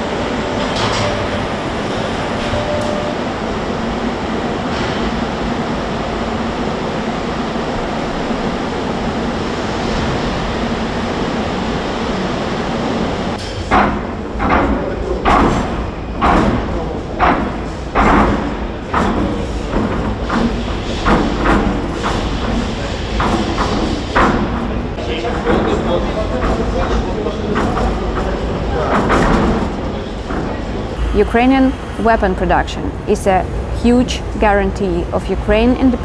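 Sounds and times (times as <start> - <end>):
steady rushing noise: 3.2 - 36.0
loud heavy knocks: 13.5 - 30.9.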